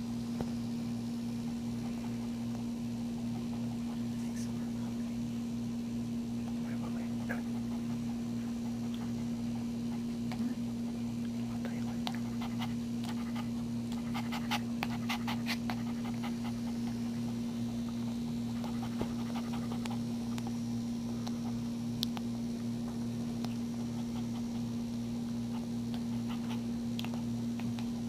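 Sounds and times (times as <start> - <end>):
steady low hum: 0.0 - 28.0
dog panting: 3.2 - 4.3, 6.5 - 20.6, 23.5 - 28.0
puppy suckling clicks: 11.2 - 17.0, 18.6 - 20.6, 21.2 - 22.3, 25.5 - 28.0.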